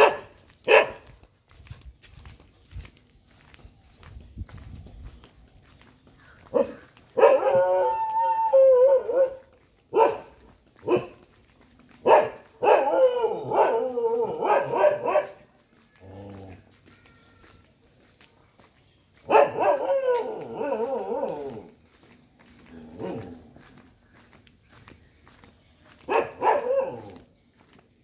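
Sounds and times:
dog barking: 0:00.0 - 0:01.1, 0:06.5 - 0:08.1, 0:08.9 - 0:11.2, 0:12.0 - 0:15.4, 0:19.3 - 0:21.5, 0:26.1 - 0:27.2.

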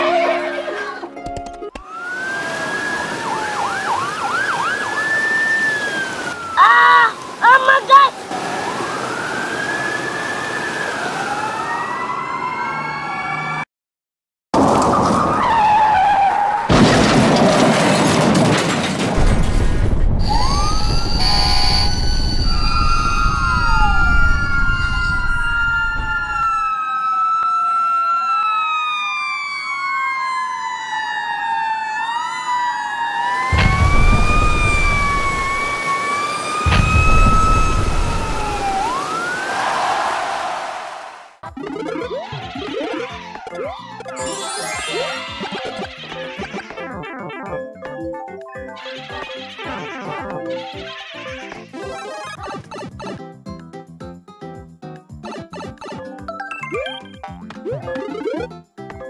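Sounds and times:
sirens wailing: 0:01.8 - 0:13.7, 0:14.8 - 0:16.8, 0:20.2 - 0:40.5, 0:41.6 - 0:46.8
fire hose spraying water: 0:33.4 - 0:39.9.

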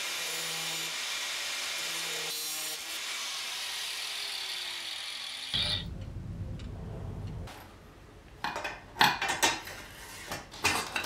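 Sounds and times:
angle grinder cutting metal: 0:00.0 - 0:05.9.

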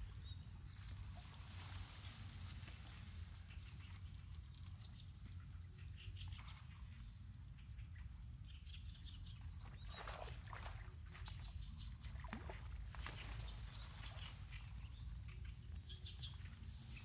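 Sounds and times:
rustling: 0:00.8 - 0:04.7.

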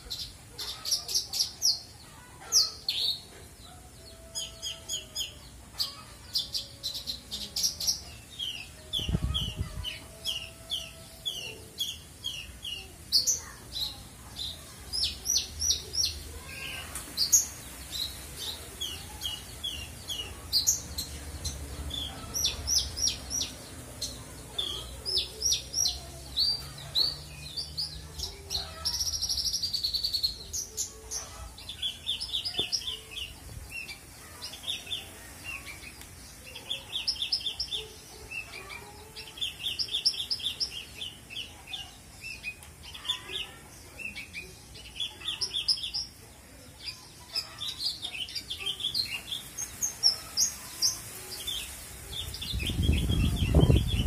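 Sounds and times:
lark singing chirps and trills: 0:51.5 - 0:54.0.

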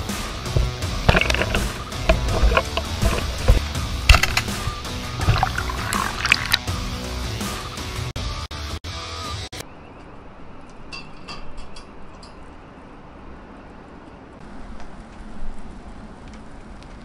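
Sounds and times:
music: 0:00.0 - 0:09.6
coals ticking: 0:00.4 - 0:06.6.

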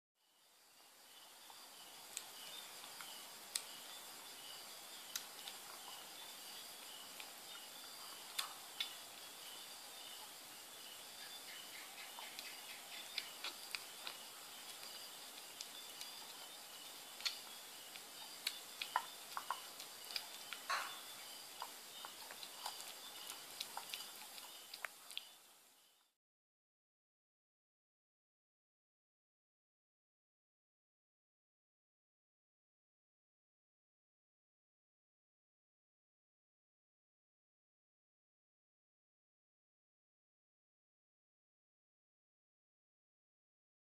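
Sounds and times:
kitten licking and chewing: 0:05.0 - 0:09.4, 0:11.8 - 0:25.4.

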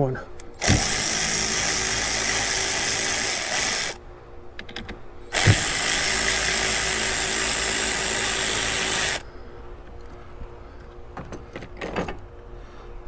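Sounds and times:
power ratchet spinning: 0:00.5 - 0:04.0, 0:05.3 - 0:09.2.

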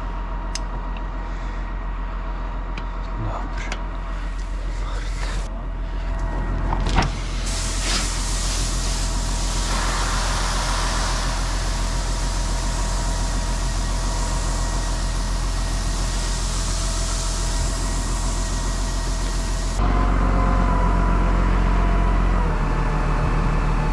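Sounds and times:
tractor engine running: 0:03.8 - 0:23.9
rushing hiss: 0:07.3 - 0:19.8.

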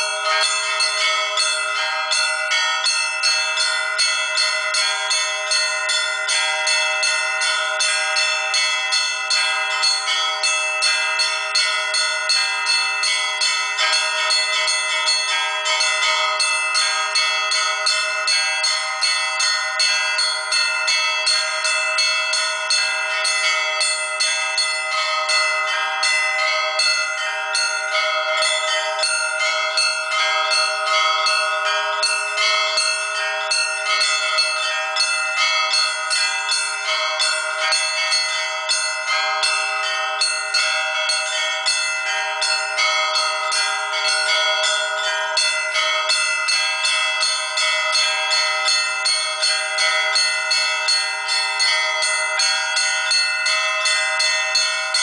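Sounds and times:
church bells pealing: 0:00.0 - 0:55.0.

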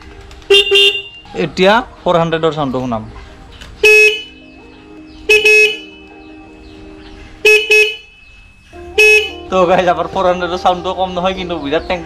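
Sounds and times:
motorcycle horn blasts: 0:00.5 - 0:01.2, 0:03.8 - 0:04.4, 0:05.2 - 0:06.0, 0:07.4 - 0:08.2, 0:08.9 - 0:09.6.

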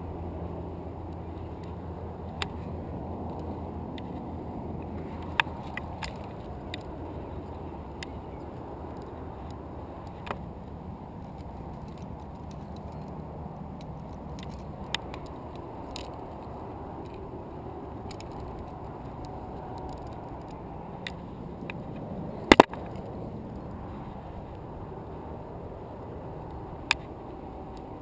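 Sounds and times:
low background rush: 0:00.0 - 0:28.0.

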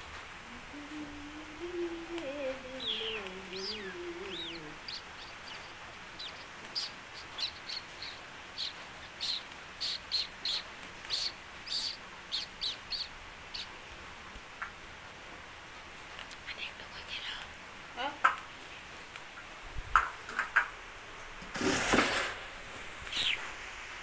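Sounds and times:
low voice humming: 0:00.4 - 0:05.1
small bird chirping: 0:01.6 - 0:14.0, 0:23.0 - 0:23.6.

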